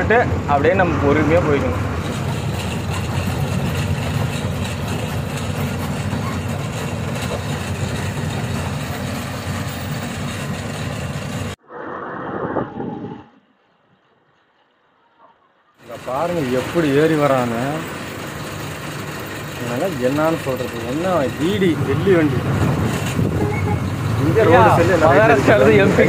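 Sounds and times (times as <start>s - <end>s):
cab and body rattling: 1.8s - 11.5s
lorry engine drone: 15.8s - 26.0s.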